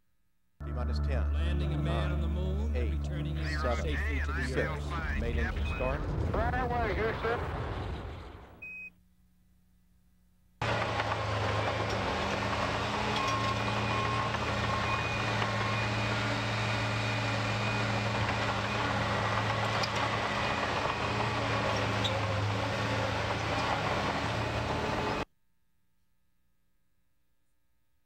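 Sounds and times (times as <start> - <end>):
diesel engine humming: 0.6 - 8.6, 10.6 - 25.2.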